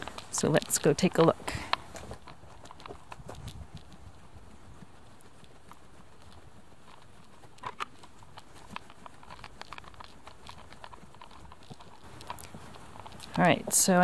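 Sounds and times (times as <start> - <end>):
footsteps walking: 0.0 - 14.0.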